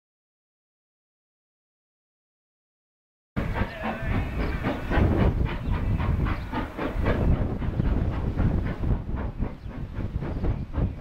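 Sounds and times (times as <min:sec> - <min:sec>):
deep rumble of train: 0:03.4 - 0:11.0
steam locomotive exhaust barking: 0:03.4 - 0:11.0.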